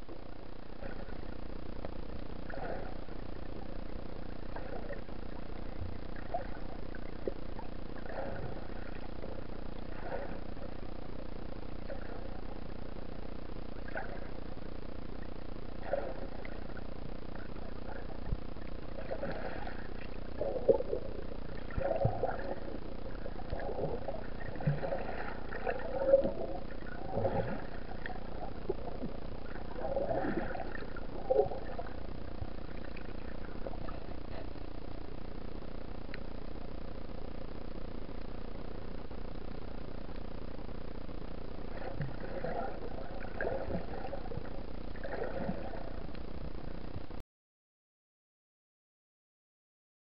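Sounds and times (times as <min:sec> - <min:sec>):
underwater low drone: 0:00.0 - 0:47.2
soft underwater swish: 0:02.5 - 0:03.1, 0:04.5 - 0:05.1, 0:06.2 - 0:09.2, 0:09.9 - 0:10.7, 0:15.8 - 0:16.8, 0:19.0 - 0:34.6, 0:41.7 - 0:46.1.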